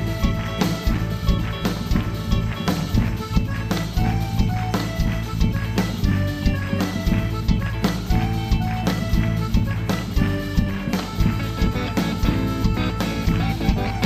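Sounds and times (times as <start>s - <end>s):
bass drum beats: 0.0s - 14.0s
live band playing instrumental: 0.0s - 14.0s.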